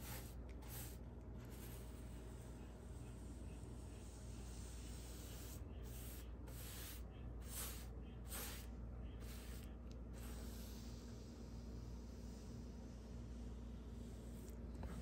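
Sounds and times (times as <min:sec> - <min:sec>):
paintbrush swishing on wall: 0:00.0 - 0:12.5.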